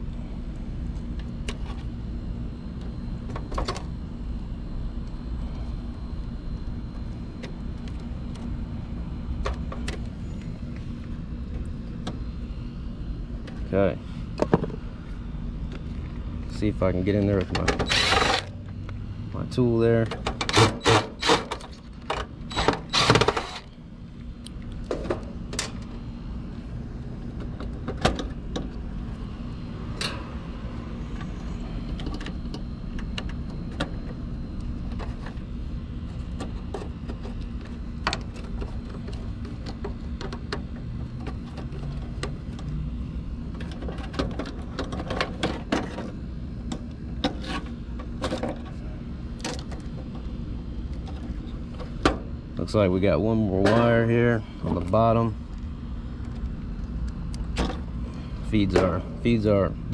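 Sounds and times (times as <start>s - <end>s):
steady low hum: 0.0s - 59.9s
cordless impact driver bursts: 17.9s - 18.5s, 20.4s - 21.5s, 22.5s - 23.6s.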